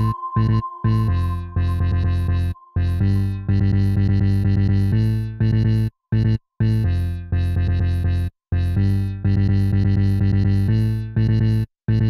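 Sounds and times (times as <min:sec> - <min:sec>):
electronic trance music: 0:00.0 - 0:05.3.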